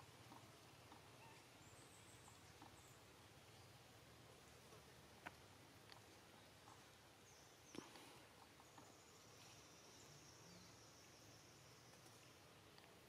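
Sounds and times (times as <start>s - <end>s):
faint outdoor hiss: 0.0s - 13.0s.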